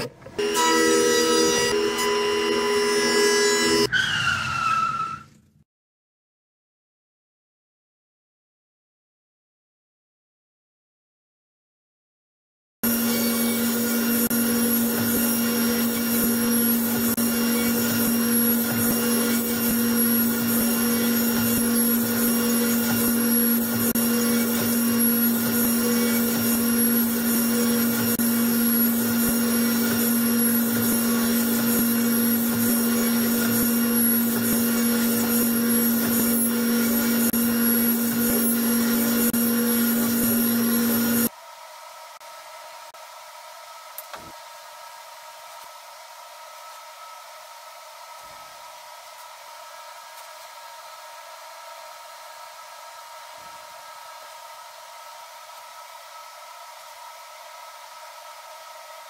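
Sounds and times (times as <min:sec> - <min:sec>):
table saw running: 0:00.0 - 0:03.9, 0:12.8 - 0:41.3.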